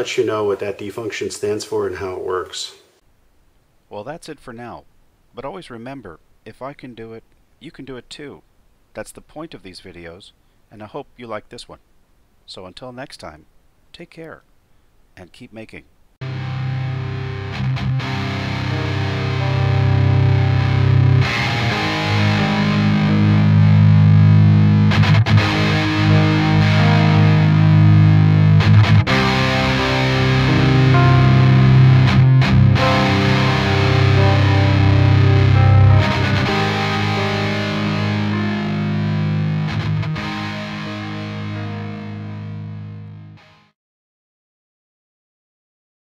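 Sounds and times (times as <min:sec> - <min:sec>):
distorted electric guitar rock: 0:16.2 - 0:43.7.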